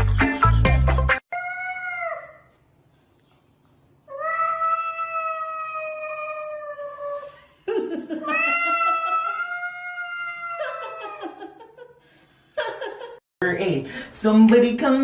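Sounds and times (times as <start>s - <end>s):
loud music: 0.0s - 1.2s
cat yowling: 4.1s - 7.2s, 8.2s - 11.4s.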